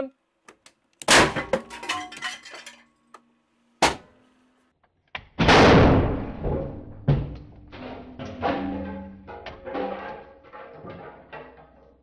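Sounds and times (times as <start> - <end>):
sharp explosive bang: 5.4 - 7.1.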